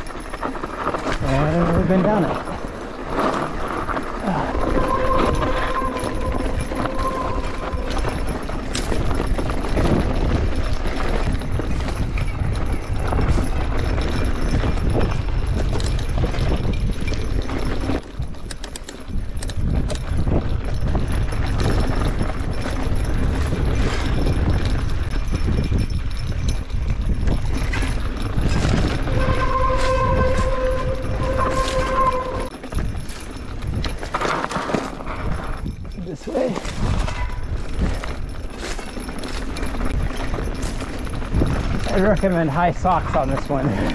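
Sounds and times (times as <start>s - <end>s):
bike rattling and knocking: 0.0s - 43.9s
wind rumble on microphone: 0.0s - 43.9s
brush scraping past bike: 3.0s - 9.2s, 29.1s - 32.5s.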